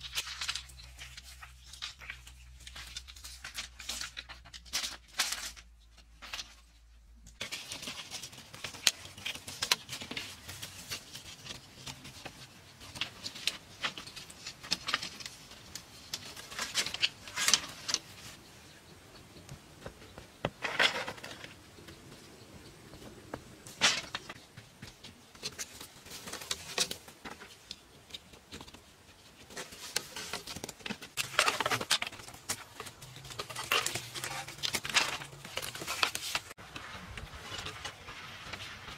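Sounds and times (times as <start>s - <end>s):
bamboo slats clattering: 19.8s - 21.6s, 23.6s - 27.8s, 29.4s - 38.9s
bamboo slats scraping: 20.4s - 21.6s, 23.6s - 27.6s, 29.3s - 38.9s.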